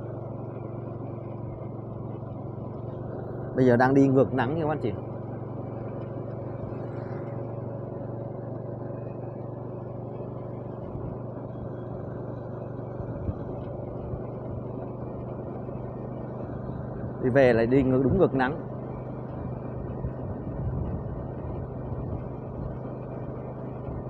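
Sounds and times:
road noise: 0.0s - 24.0s
vehicle engine running: 0.0s - 24.0s.

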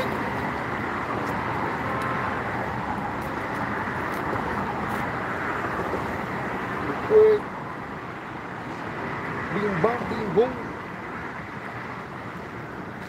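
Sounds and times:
road traffic hiss: 0.0s - 13.0s.

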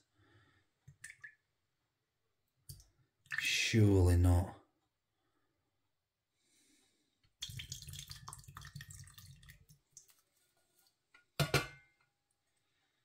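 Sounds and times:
sauce plopping into saucepan: 7.4s - 10.2s.

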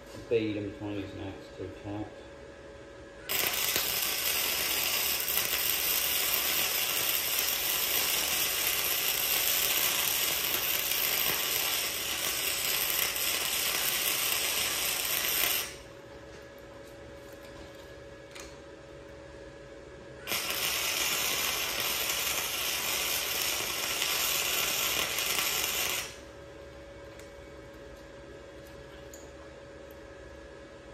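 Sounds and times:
welding arc crackling: 3.3s - 15.9s, 20.2s - 26.3s.

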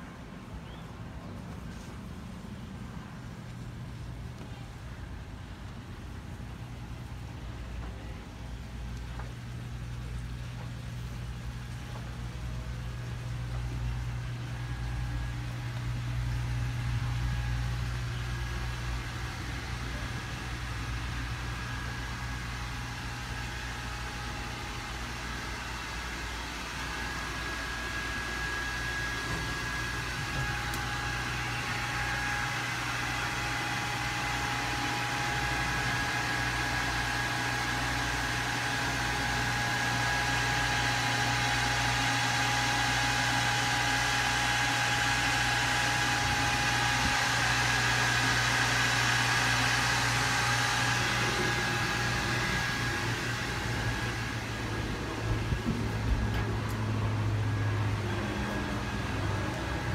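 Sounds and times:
engine machinery hum: 0.0s - 59.9s.

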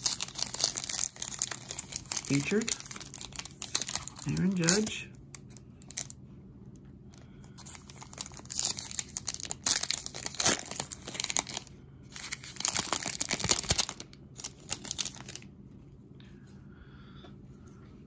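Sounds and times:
foil wrapper tearing and crinkling: 0.0s - 6.1s, 7.6s - 15.4s.

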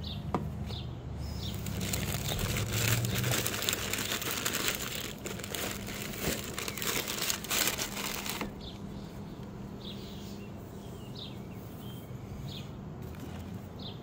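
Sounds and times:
tissue paper crinkling: 1.5s - 8.6s.

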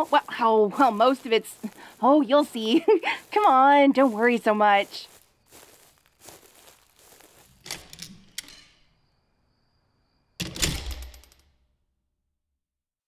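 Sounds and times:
footsteps: 0.0s - 8.8s
door opening with a thud: 10.4s - 11.3s.

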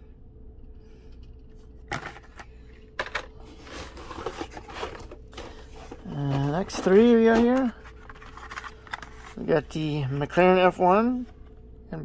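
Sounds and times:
faint steady hum: 0.0s - 12.0s
plastic clacks: 1.9s - 5.5s
rustling and scraping in cardboard: 3.4s - 10.3s.

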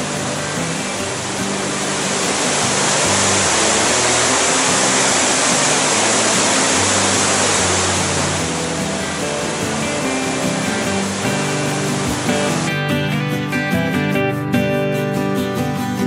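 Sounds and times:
waterfall rushing over rocks: 0.0s - 12.8s
background music with bass: 0.0s - 16.0s.

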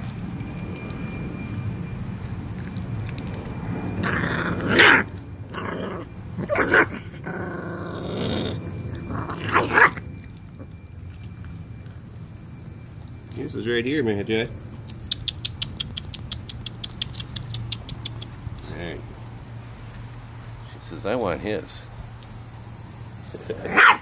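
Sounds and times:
low rumble: 0.0s - 15.0s
puppies growling and snarling: 3.7s - 10.8s.

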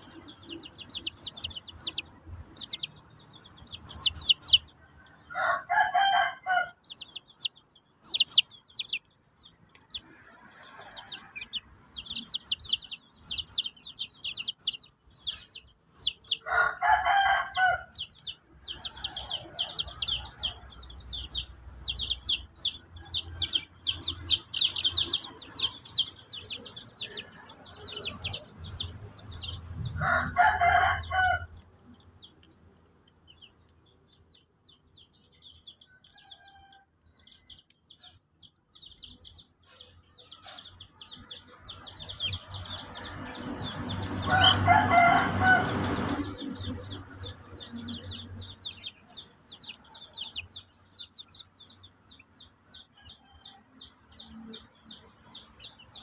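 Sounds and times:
chicks peeping: 0.0s - 56.0s
rooster crowing: 4.8s - 7.0s, 16.2s - 18.0s, 29.4s - 31.6s, 35.9s - 36.9s, 43.6s - 46.6s.

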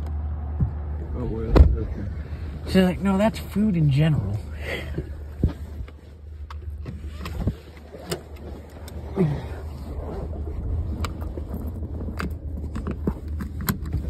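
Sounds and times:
car engine hum inside cabin: 0.0s - 14.0s
clicks and knocks of handling: 11.0s - 14.0s.

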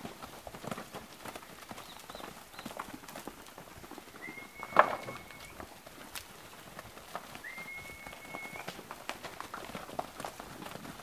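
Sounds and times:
cattle hooves on dirt: 0.0s - 11.0s
long steady whistle: 7.4s - 8.7s.

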